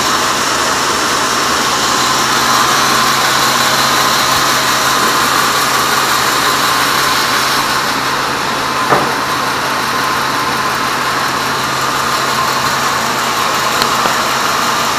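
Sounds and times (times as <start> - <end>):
band saw whining: 0.0 - 14.9
low motor hum: 0.0 - 14.9
short knock: 8.9 - 9.3.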